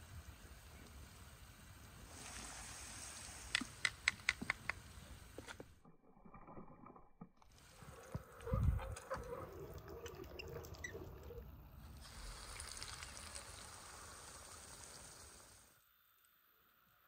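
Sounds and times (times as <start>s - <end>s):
sharp clicks and pops: 3.5s - 5.7s
potatoes and onions sizzling in pan: 12.0s - 15.8s.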